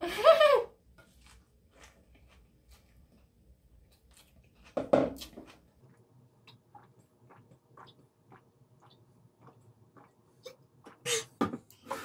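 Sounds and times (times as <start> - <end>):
wet chewing mouth sounds: 4.1 - 11.1.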